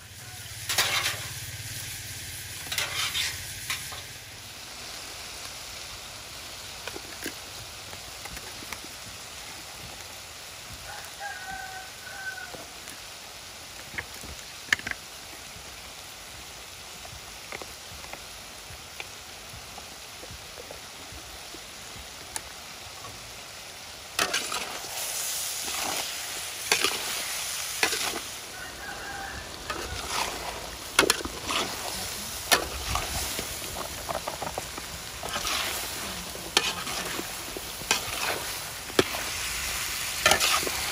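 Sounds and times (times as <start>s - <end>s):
chicken sizzling in a wok: 0.0s - 40.9s
metal spatula scraping wok: 0.1s - 4.2s, 24.1s - 40.9s
chicken calling: 28.2s - 30.9s.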